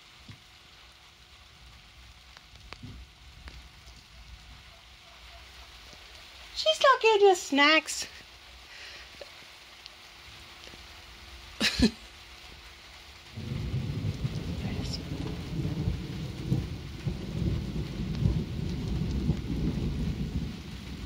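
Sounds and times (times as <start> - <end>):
light rain: 0.0 - 21.0
rolling thunder rumble: 1.5 - 4.8, 13.2 - 21.0
sharp thunder crack: 13.3 - 21.0.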